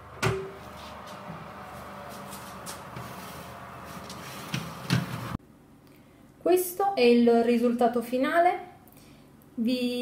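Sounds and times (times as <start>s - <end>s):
oven fan humming: 0.0s - 5.4s.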